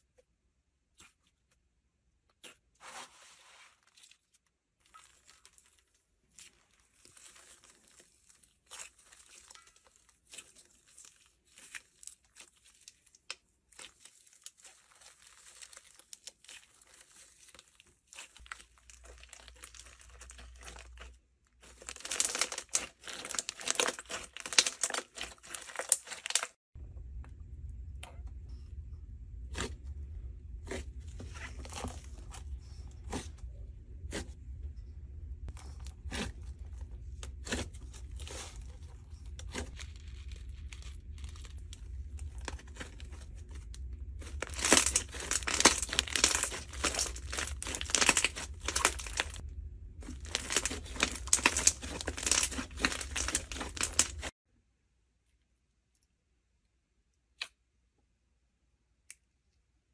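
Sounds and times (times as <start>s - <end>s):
slime squishing and crackling: 2.3s - 26.6s, 30.6s - 34.4s, 35.5s - 54.4s
foam beads rustling: 44.2s - 49.4s, 50.0s - 54.3s.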